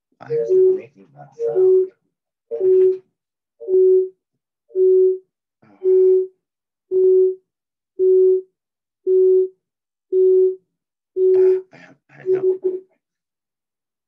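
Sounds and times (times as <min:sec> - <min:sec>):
mid-pitched beeping tone: 0:00.3 - 0:01.9.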